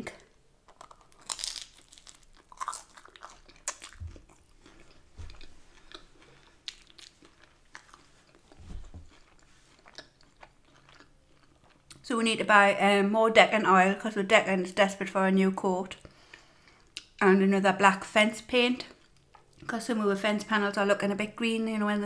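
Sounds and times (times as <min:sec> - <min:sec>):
chewing pizza crust: 0:00.7 - 0:12.0.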